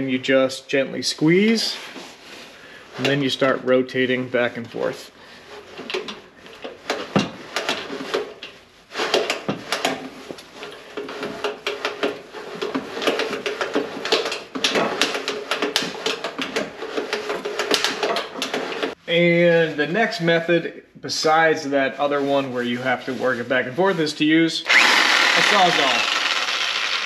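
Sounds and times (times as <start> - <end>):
exhaust cutter clicking and scraping: 2.9 - 19.0.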